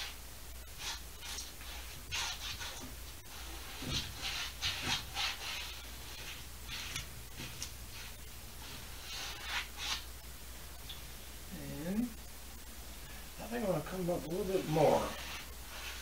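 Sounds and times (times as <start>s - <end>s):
paintbrush scrubbing canvas: 0.0s - 10.1s, 14.3s - 16.0s.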